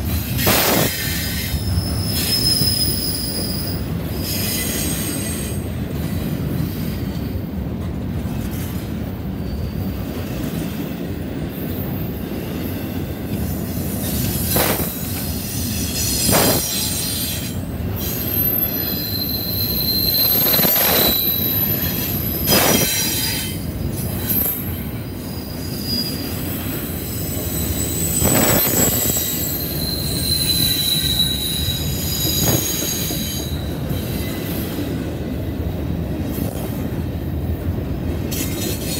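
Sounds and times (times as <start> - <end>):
train wheels rumbling on rail: 0.0 - 38.9
wheel squeals: 0.4 - 7.2, 9.4 - 10.8, 13.9 - 23.6, 24.2 - 34.8.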